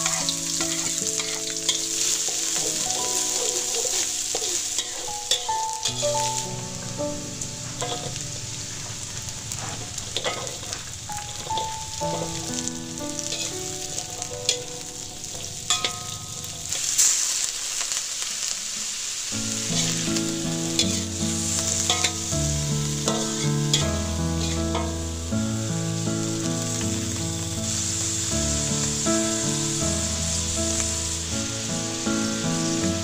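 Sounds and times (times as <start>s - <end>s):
metal spatula scraping pan: 0.0s - 6.3s, 7.8s - 8.2s, 9.6s - 10.8s, 20.8s - 22.3s, 24.4s - 25.0s
instrumental music: 0.0s - 16.8s, 19.3s - 33.0s
food sizzling in a wok: 0.0s - 33.0s.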